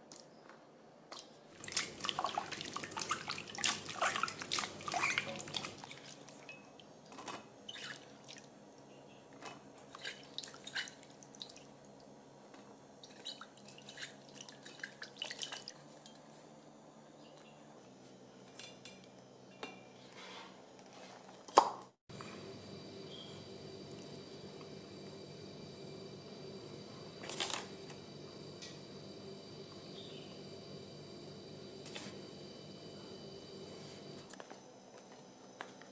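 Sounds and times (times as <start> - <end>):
water splashing in metal bowl: 1.6 - 6.2.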